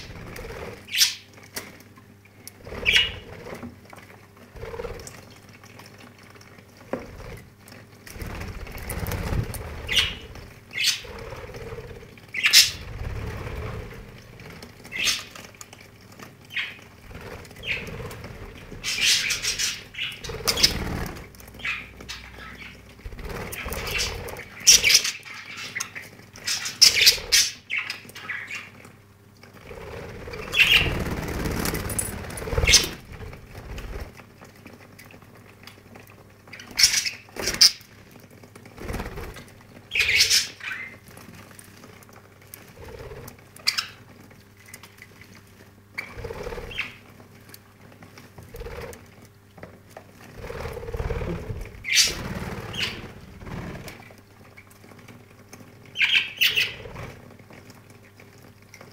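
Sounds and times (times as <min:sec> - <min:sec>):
wings flapping: 0:00.0 - 0:01.7, 0:02.6 - 0:03.8, 0:04.4 - 0:05.4, 0:06.9 - 0:27.8, 0:29.4 - 0:34.3, 0:38.6 - 0:44.2, 0:46.0 - 0:49.3, 0:50.2 - 0:54.3, 0:56.0 - 0:57.7
budgerigars chirping: 0:02.8 - 0:03.3, 0:09.9 - 0:11.1, 0:12.4 - 0:12.9, 0:17.6 - 0:17.9, 0:18.8 - 0:20.9, 0:23.5 - 0:28.7, 0:30.4 - 0:31.0, 0:39.9 - 0:41.0, 0:51.8 - 0:53.1, 0:56.0 - 0:56.8.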